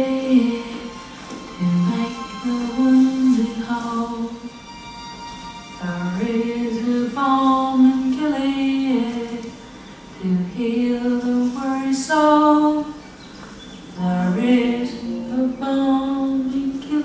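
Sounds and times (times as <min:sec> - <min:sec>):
woman singing hymn unaccompanied: 0:00.0 - 0:04.5, 0:05.8 - 0:09.6, 0:10.2 - 0:13.0, 0:14.0 - 0:17.0.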